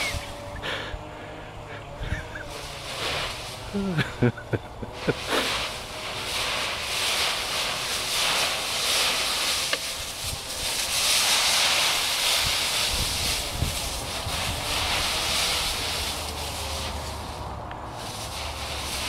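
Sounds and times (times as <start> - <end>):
dry leaves rustling and crunching: 2.0 - 19.0.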